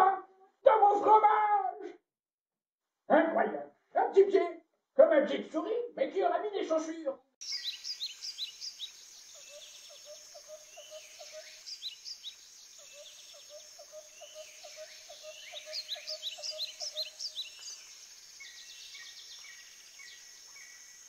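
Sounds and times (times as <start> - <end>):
birds chirping: 7.4 - 21.0.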